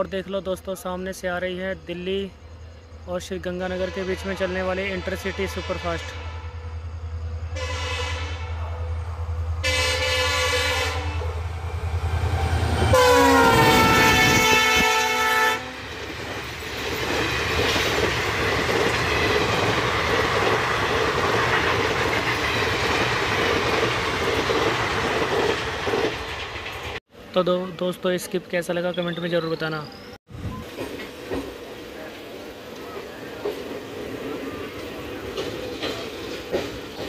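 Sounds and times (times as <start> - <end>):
train horn blasts: 3.6 - 6.8, 7.5 - 9.0, 9.6 - 11.4, 12.8 - 15.8
train wheels clattering over rails: 15.9 - 27.0, 33.4 - 37.0.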